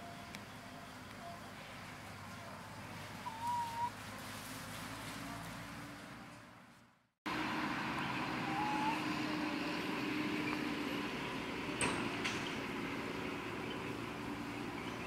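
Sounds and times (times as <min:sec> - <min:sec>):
distant motor hum: 0:07.3 - 0:15.0.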